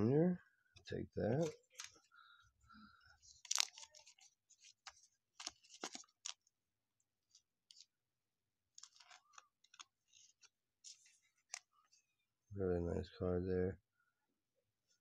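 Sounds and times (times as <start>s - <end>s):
plastic card sleeve crinkling: 1.3s - 2.1s, 3.2s - 6.5s, 7.2s - 7.9s, 8.7s - 12.0s.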